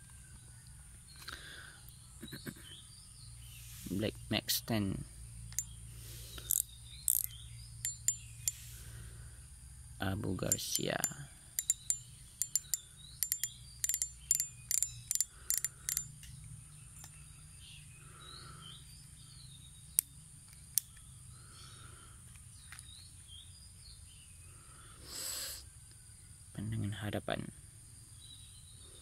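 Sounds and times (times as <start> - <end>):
birds chirping: 0.0 - 29.0
fishing reel clicking: 6.4 - 8.8, 10.4 - 16.3.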